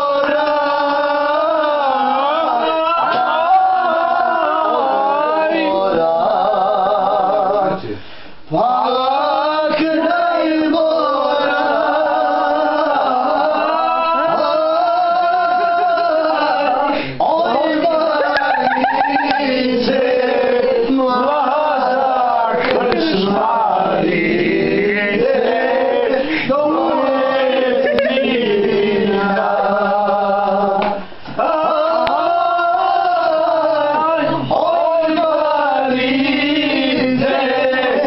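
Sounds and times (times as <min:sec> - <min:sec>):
man singing loudly: 0:24.8 - 0:38.0.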